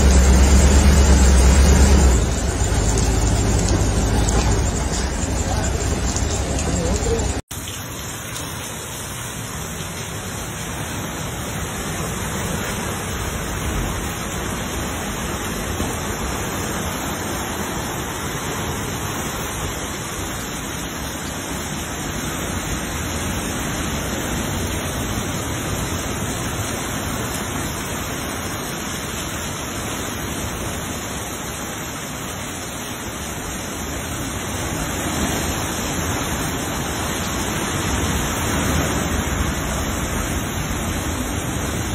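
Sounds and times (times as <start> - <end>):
storm surf breaking on rocks: 33.4 - 41.9.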